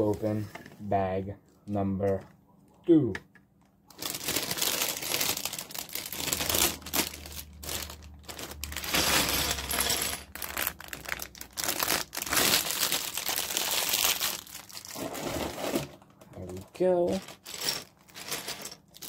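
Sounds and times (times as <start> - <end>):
plastic bag crinkling: 3.9 - 19.0.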